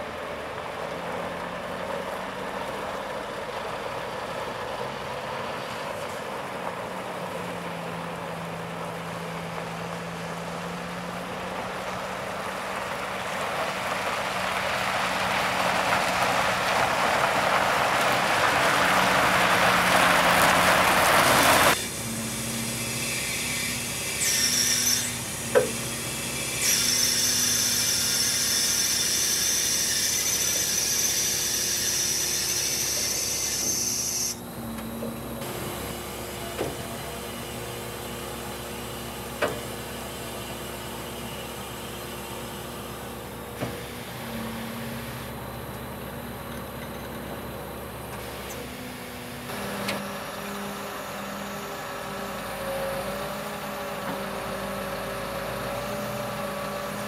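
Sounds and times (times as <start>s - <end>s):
diesel engine idling: 0.0s - 22.8s
hiss: 14.5s - 34.4s.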